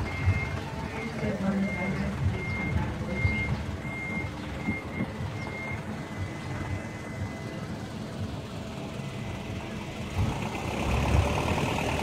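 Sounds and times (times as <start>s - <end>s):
electronic beeper beeping: 0.0s - 7.7s.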